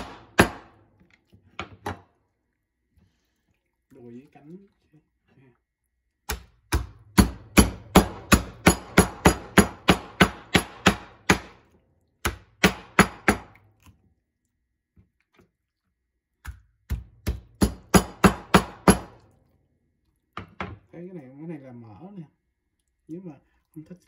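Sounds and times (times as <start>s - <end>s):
cleaver chopping on wooden board: 0.0s - 0.8s, 6.3s - 11.6s, 12.2s - 13.6s, 16.4s - 19.2s.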